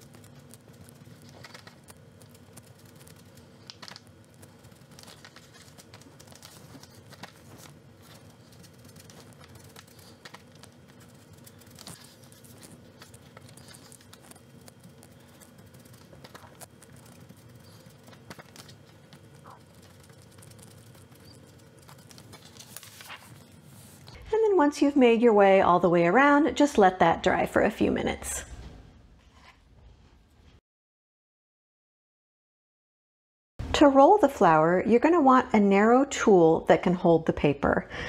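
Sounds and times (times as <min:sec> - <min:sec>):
paper handling: 0:00.0 - 0:24.2.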